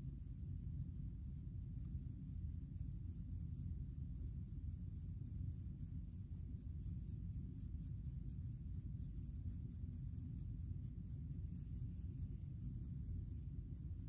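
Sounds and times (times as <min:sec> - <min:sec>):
low steady rumble: 0:00.0 - 0:14.0
comb scratching through hair: 0:05.4 - 0:14.0.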